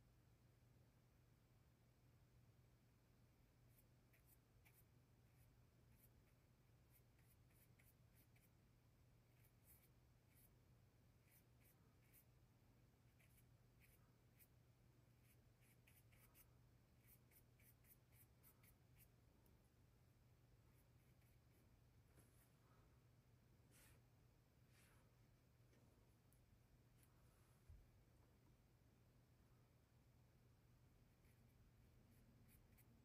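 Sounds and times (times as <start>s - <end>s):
paintbrush scratching on canvas: 3.7s - 8.6s, 9.2s - 12.4s, 13.1s - 19.2s, 20.7s - 22.5s, 31.2s - 33.0s.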